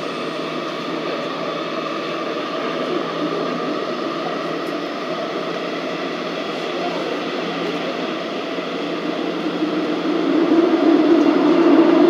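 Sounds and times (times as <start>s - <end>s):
subway car rumble: 0.0s - 12.0s.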